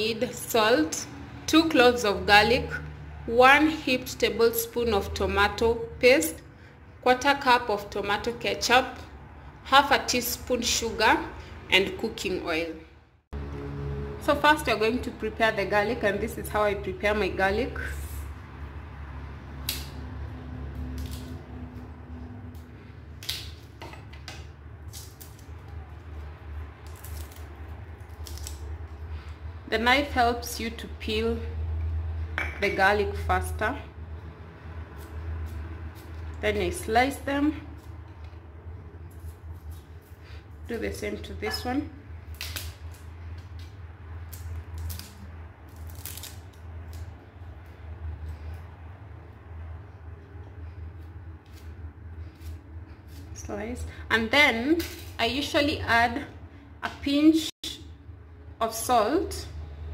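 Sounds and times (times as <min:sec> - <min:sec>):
garlic skins peeled: 0:19.6 - 0:29.3, 0:34.8 - 0:40.8, 0:42.2 - 0:49.0, 0:50.2 - 0:53.7
garlic crushed under knife: 0:26.8 - 0:28.7.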